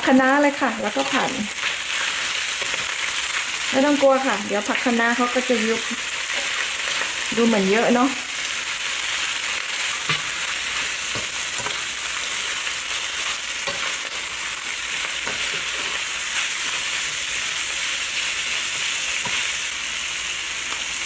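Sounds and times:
food sizzling in hot oil: 0:00.0 - 0:21.0
spatula scraping and tapping pan: 0:10.0 - 0:12.6, 0:13.2 - 0:14.2, 0:14.9 - 0:16.0, 0:18.7 - 0:19.5.

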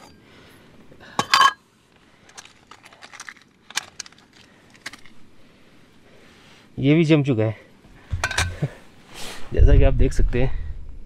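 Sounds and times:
metal cookware clinking: 0:01.2 - 0:01.6.

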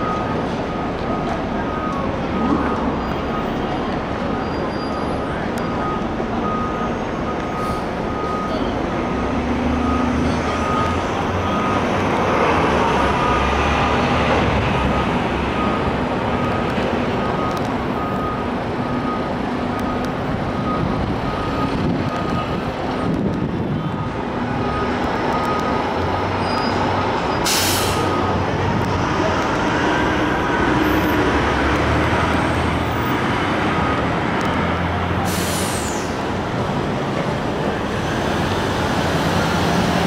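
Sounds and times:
reversing alarm beeps: 0:00.0 - 0:08.8, 0:09.7 - 0:12.0, 0:12.8 - 0:13.8, 0:14.8 - 0:23.2, 0:23.8 - 0:28.5, 0:33.8 - 0:34.2
passing traffic: 0:00.0 - 0:40.0
truck engine rumble: 0:00.0 - 0:40.0
air brakes hissing: 0:26.4 - 0:28.2, 0:35.2 - 0:36.2.

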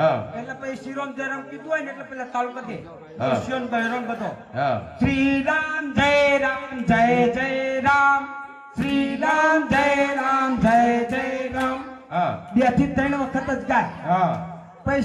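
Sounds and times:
man singing unaccompanied: 0:04.7 - 0:13.7.

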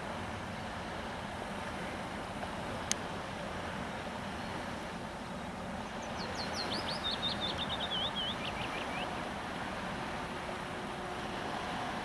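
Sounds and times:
songbird singing: 0:05.4 - 0:09.9.

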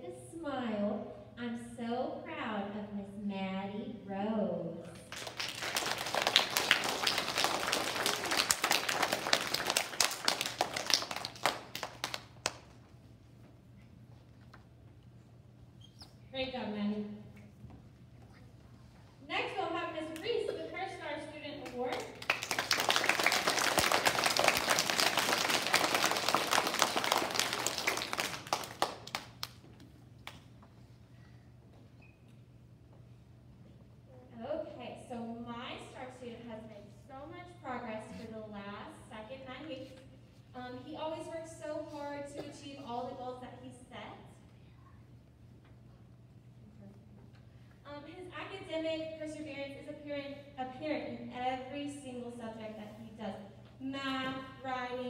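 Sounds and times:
faint steady hum: 0:00.0 - 0:55.0
children clapping: 0:05.1 - 0:12.8, 0:21.6 - 0:29.6.

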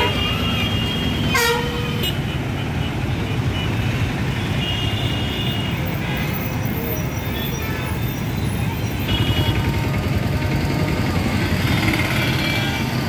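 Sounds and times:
vehicle horn: 0:00.0 - 0:02.3, 0:09.0 - 0:11.0, 0:11.7 - 0:13.0
traffic engines rumbling: 0:00.0 - 0:13.0.

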